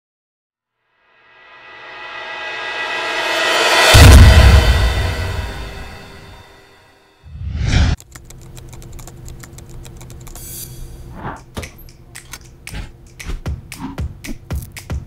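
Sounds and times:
loud whoosh: 2.2s - 6.4s, 7.3s - 8.0s
sharp mechanical clicks: 8.0s - 10.4s.

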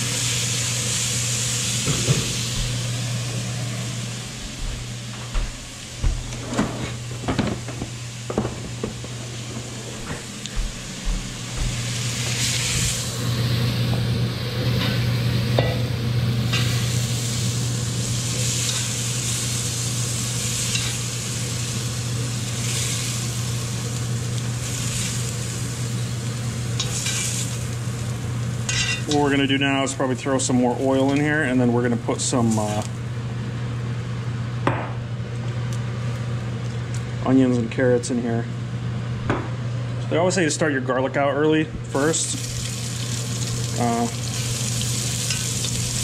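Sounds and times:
vegetables sizzling in hot oil: 0.0s - 2.8s, 11.9s - 29.1s, 42.2s - 46.0s
steady low hum: 0.0s - 46.0s.

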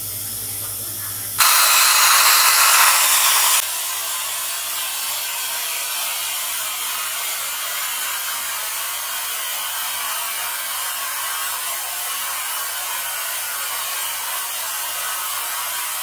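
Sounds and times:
compressed air hissing: 1.4s - 16.0s.

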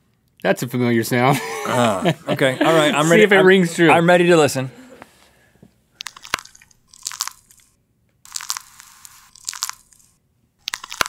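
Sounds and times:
knee crackling and clicks: 6.0s - 11.0s.

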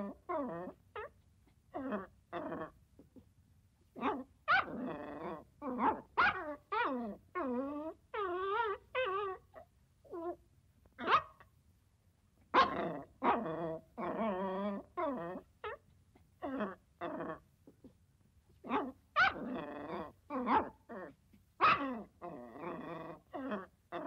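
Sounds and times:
dog barking: 5.8s - 6.4s, 11.0s - 11.4s, 12.5s - 13.4s, 20.4s - 20.8s, 21.6s - 21.9s.

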